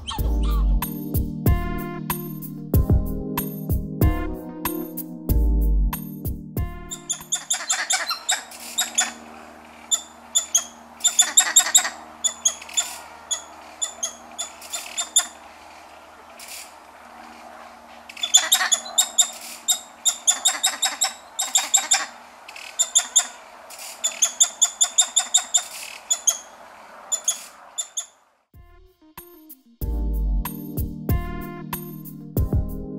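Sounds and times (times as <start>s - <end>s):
monkeys chirping: 0.0s - 0.6s, 6.9s - 15.4s, 16.3s - 28.2s
steady background hiss: 8.1s - 28.5s.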